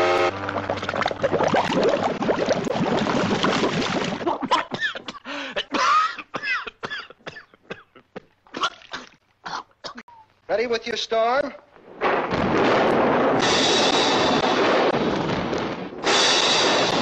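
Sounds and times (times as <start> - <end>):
water churning and bubbling: 0.0 - 4.6.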